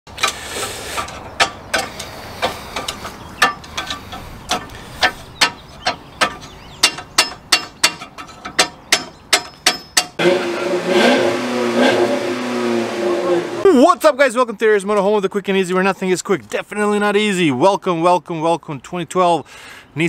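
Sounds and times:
engine revving: 10.2 - 13.7.

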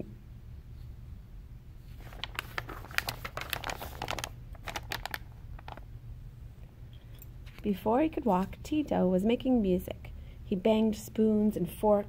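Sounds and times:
book pages turning: 1.9 - 5.8.

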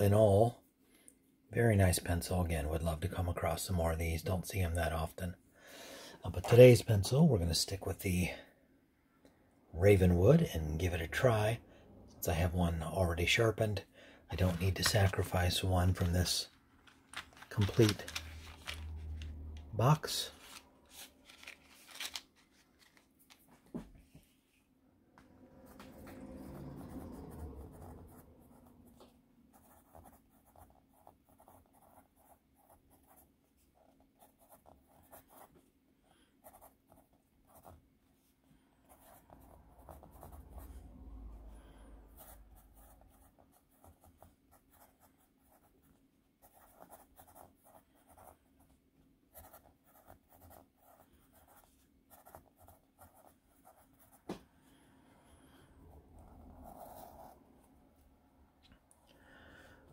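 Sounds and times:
pencil scratching on paper: 25.7 - 37.9, 38.8 - 40.8, 42.1 - 54.4, 56.1 - 57.4.

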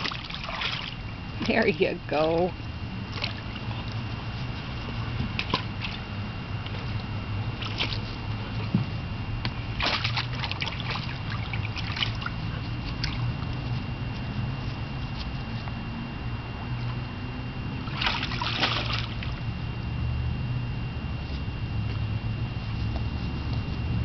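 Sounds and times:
dog splashing in water: 0.0 - 1.0, 9.8 - 12.3, 17.9 - 19.3
steady low rumble: 0.0 - 24.0.

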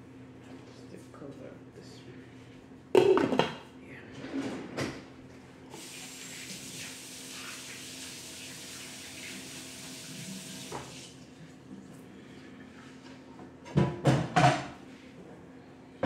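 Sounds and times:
tap water running: 5.7 - 11.2.

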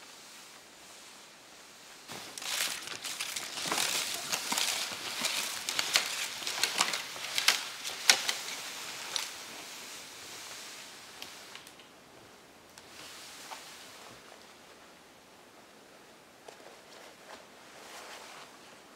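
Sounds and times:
snowshoe footsteps crunching snow: 2.1 - 9.7
sled dragging: 2.1 - 11.1.

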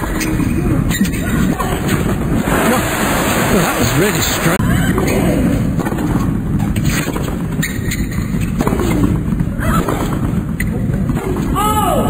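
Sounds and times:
low arena hum: 0.0 - 12.0
ball bouncing on hard court: 5.8 - 11.6
rackets hitting tennis ball: 5.8 - 11.6.

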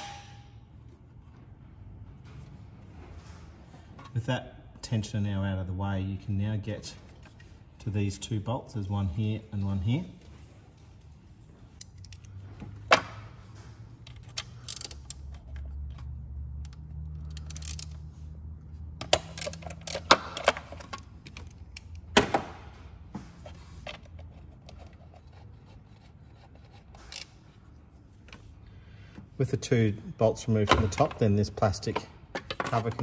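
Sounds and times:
ratchet clicking on bolts: 14.2 - 15.3, 16.6 - 18.0, 19.0 - 20.6.

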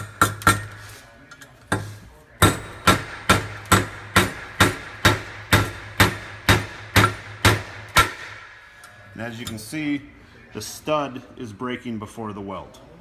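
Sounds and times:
hammer striking steel studs: 0.0 - 0.8, 1.7 - 8.4.

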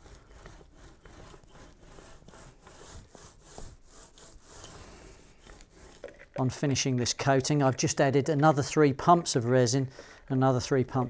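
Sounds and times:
foam roller swishing on plywood: 0.0 - 6.9.

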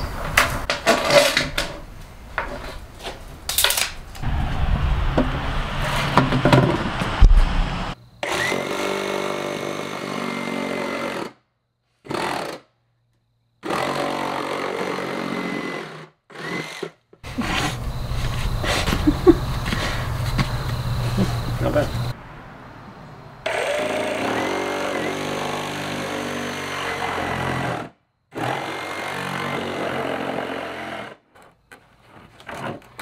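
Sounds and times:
reciprocating saw cutting cardboard: 13.6 - 19.0, 23.5 - 31.2.

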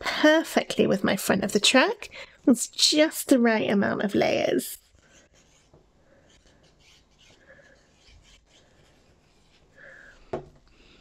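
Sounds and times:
pen tip scratching on cardstock: 4.8 - 9.7.

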